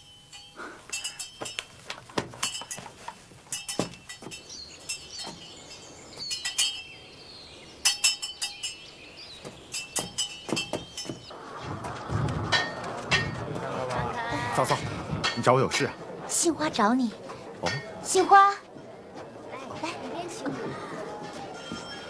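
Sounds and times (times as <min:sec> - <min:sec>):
light metallic clinks and chimes: 0:00.0 - 0:07.1, 0:07.8 - 0:11.3, 0:21.5 - 0:22.0.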